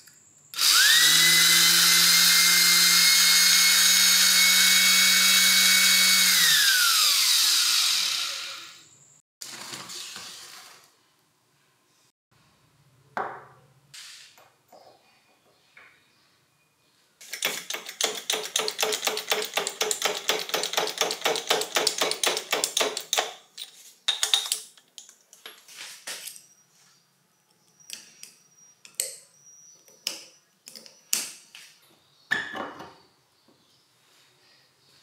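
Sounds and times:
rapid mechanical clicks: 0:17.3 - 0:23.2.

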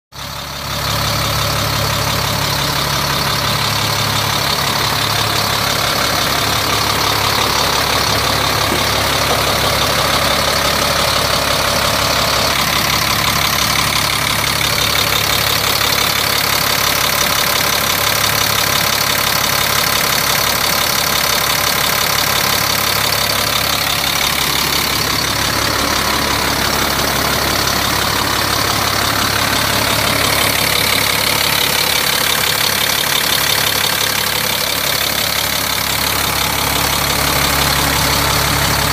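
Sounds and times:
diesel truck engine idling: 0:00.1 - 0:38.9.

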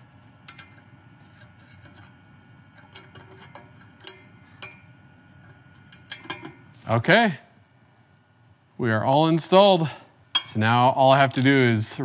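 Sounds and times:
metallic clicks of pliers and snap ring: 0:11.2 - 0:11.6.

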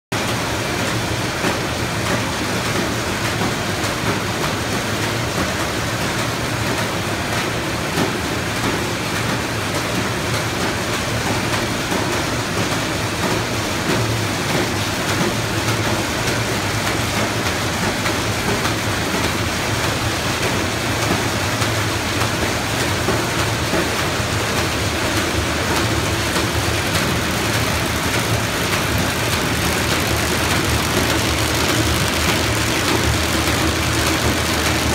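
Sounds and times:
paper bag machine mechanical din: 0:20.0 - 0:34.9
low machine hum: 0:24.4 - 0:34.9.

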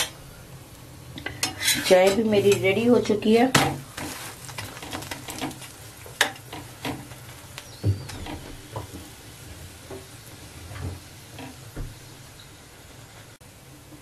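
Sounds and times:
flatbread sizzling on a griddle: 0:00.0 - 0:14.0
metal spatula scraping: 0:01.2 - 0:02.6.

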